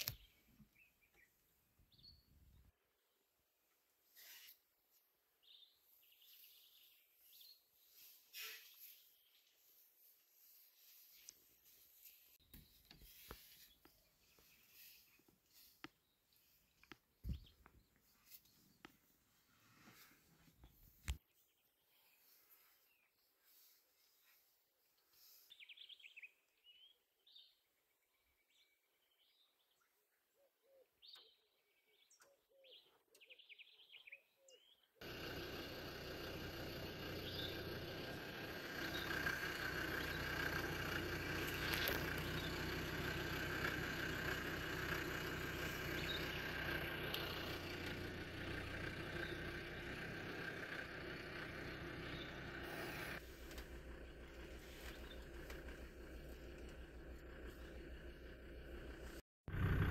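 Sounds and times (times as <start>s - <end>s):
small birds chirping: 0.0s - 3.4s, 5.3s - 58.3s
vehicle engine driving: 35.0s - 59.9s.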